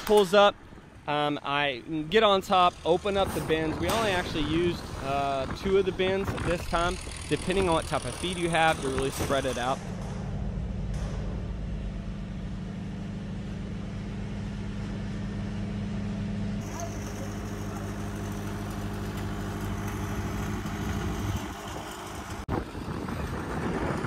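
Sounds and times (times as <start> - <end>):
diesel truck engine idling: 11.5 - 22.5.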